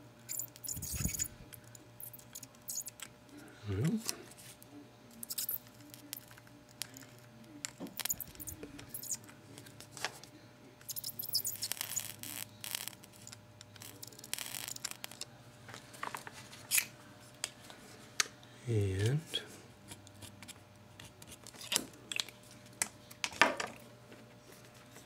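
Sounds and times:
steady low hum: 0:00.0 - 0:11.2
soldering iron scraping leads: 0:00.3 - 0:01.4, 0:07.9 - 0:09.2, 0:10.8 - 0:15.3.

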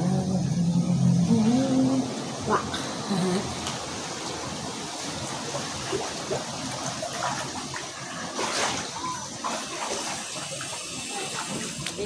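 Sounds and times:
water sloshing in plastic tub: 0:03.5 - 0:12.0.

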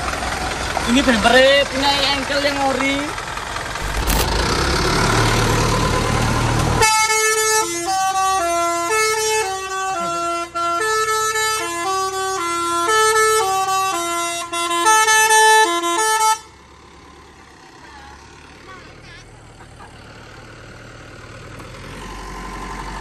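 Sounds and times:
loud truck engine: 0:00.0 - 0:23.0
truck horn playing a tune: 0:06.8 - 0:16.5.

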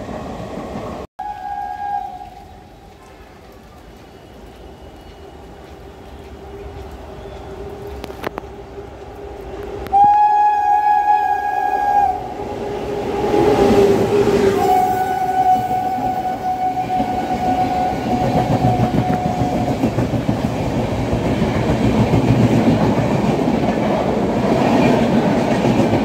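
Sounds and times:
train rumbling: 0:00.0 - 0:26.0
train horn blast: 0:01.2 - 0:02.6, 0:06.4 - 0:19.8.

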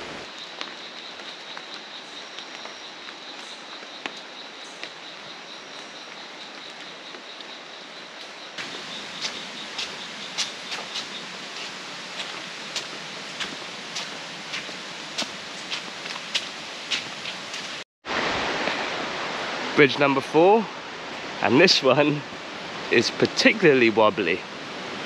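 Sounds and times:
steady hiss: 0:08.6 - 0:25.0.

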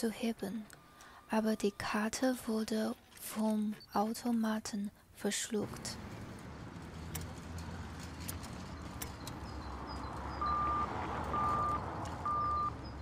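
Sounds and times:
low street hum: 0:00.0 - 0:13.0
cash machine beeping: 0:10.0 - 0:13.0.

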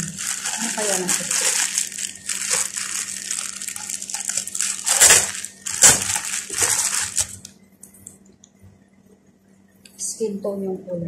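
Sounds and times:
loud plastic crackles: 0:00.0 - 0:07.5
plastic packaging crinkling: 0:00.0 - 0:07.5.

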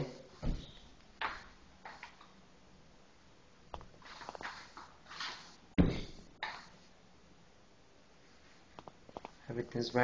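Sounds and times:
faint footsteps: 0:00.3 - 0:02.4.

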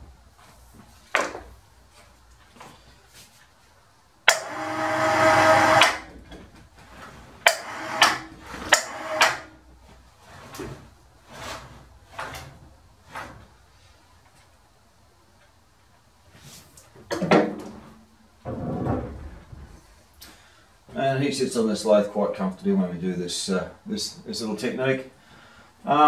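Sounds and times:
electric hoist motor: 0:04.3 - 0:06.2, 0:07.4 - 0:09.6.

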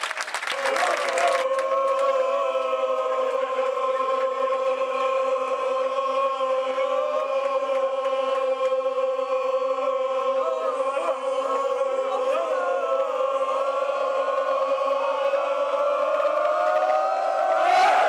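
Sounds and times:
football crowd chanting: 0:00.7 - 0:18.0
steady drone: 0:17.2 - 0:18.0.

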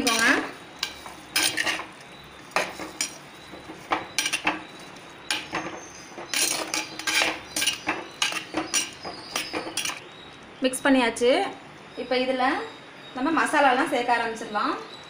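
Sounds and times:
ladle scraping clay pot: 0:00.0 - 0:10.1.

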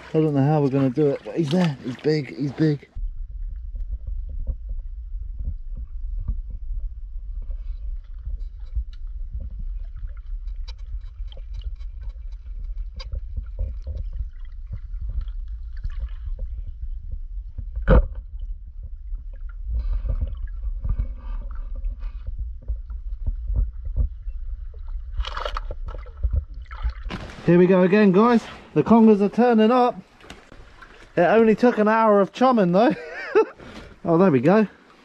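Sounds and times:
muffled underwater rumble: 0:02.9 - 0:27.3.

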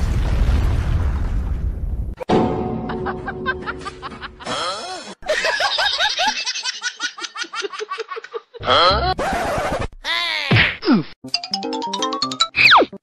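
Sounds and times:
high-pitched laughter: 0:03.8 - 0:09.5.

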